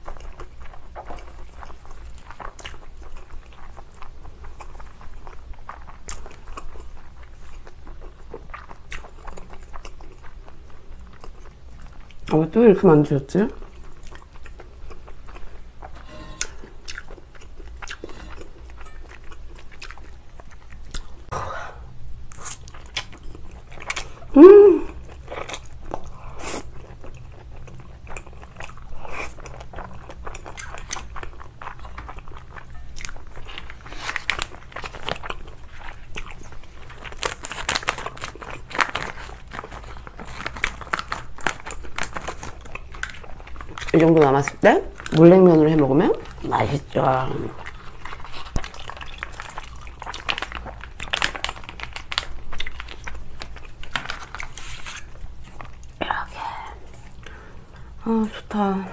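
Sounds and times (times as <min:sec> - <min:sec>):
wet chewing and slurping: 0:00.0 - 0:12.3, 0:13.6 - 0:21.3, 0:24.9 - 0:45.2, 0:46.1 - 0:56.0.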